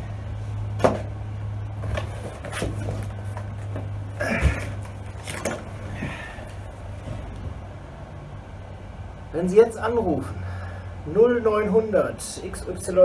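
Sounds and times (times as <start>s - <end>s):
steady low hum: 0.0s - 13.0s
cardboard box handling: 1.8s - 7.4s.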